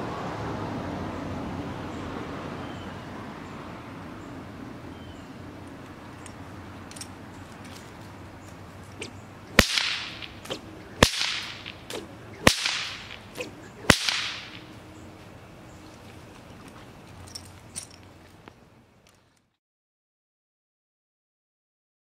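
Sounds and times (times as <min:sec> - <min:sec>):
whip cracking: 0:08.9 - 0:14.7.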